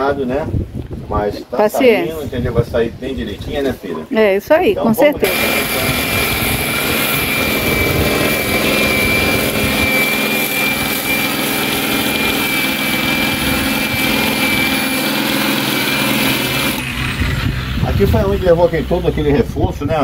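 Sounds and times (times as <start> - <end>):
electric disc sander on metal: 5.2 - 19.5.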